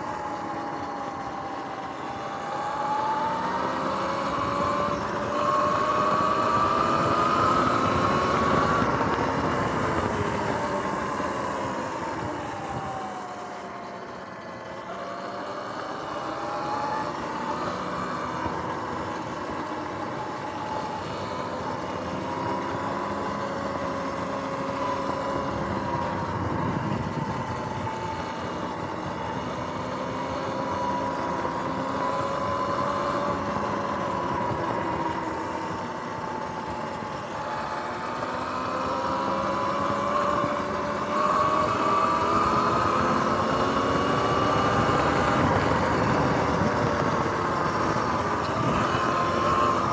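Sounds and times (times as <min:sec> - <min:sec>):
electric motor whine: 0:00.0 - 0:49.9
tyre and wind noise: 0:16.7 - 0:49.9.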